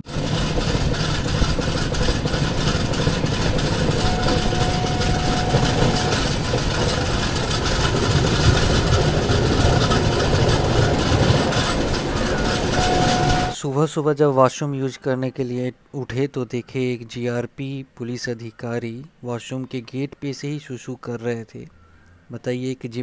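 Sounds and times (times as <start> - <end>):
rushing wind: 0.0 - 13.6
train wheels rumbling on track: 0.0 - 13.6
faint thin tone: 3.6 - 7.3, 12.2 - 13.6.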